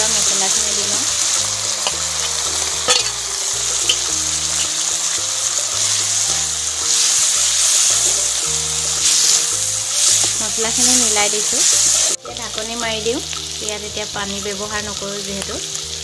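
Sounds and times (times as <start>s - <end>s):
background music: 0.0s - 16.0s
meat sizzling in hot oil: 0.0s - 16.0s
metal spatula stirring and scraping: 0.5s - 12.2s.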